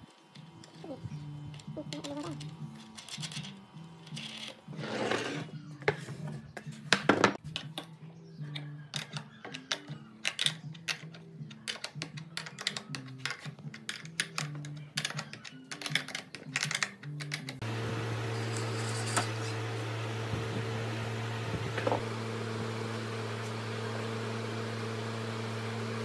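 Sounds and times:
soft background music: 0:00.0 - 0:17.6
metal nuts and washers clicking: 0:01.5 - 0:04.6, 0:07.5 - 0:17.6.

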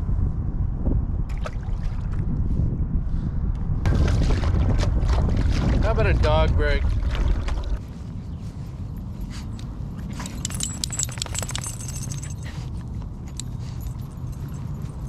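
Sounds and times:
steady low rumble: 0:00.0 - 0:15.0
small metal pieces jingling: 0:10.1 - 0:12.6.

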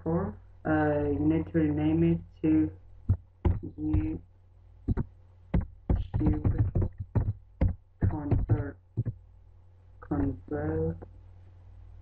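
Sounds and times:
computer keyboard keys clicking: 0:04.9 - 0:09.1.

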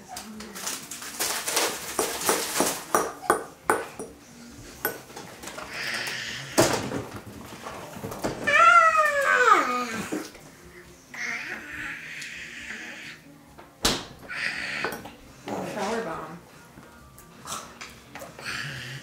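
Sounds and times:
toddler squealing: 0:08.5 - 0:10.1.

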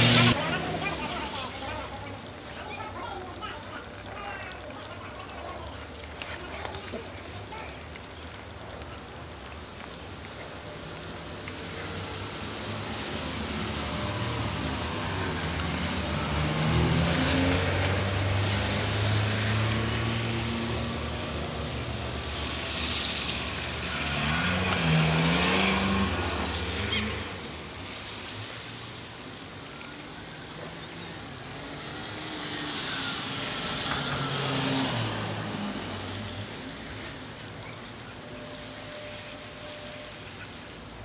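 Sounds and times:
car driving past: 0:12.2 - 0:29.0.

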